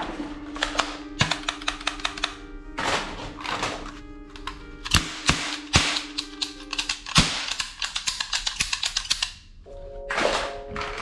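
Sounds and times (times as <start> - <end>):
background music: 0.0 - 11.0
fast sharp clicks: 0.6 - 2.4, 4.3 - 9.5
toy gun loud crack: 4.9 - 9.4.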